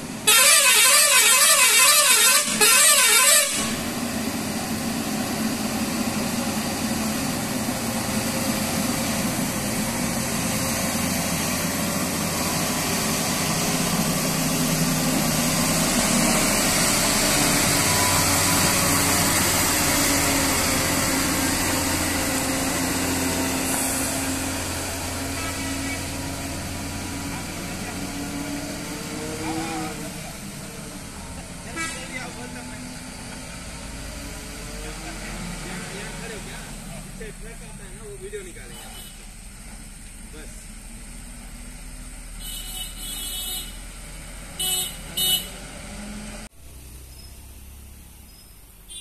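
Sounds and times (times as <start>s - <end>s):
truck diesel engine: 0.0s - 49.0s
warbling horn: 0.3s - 3.8s.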